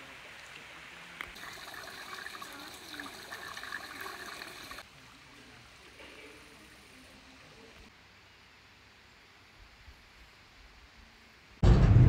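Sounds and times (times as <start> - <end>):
running water splashing: 0.0 - 4.9
faint steady hiss: 0.0 - 11.6.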